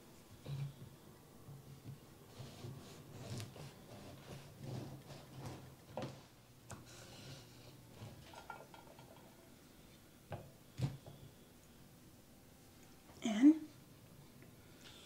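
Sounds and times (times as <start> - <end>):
bread knife sawing through loaf: 2.3 - 5.7.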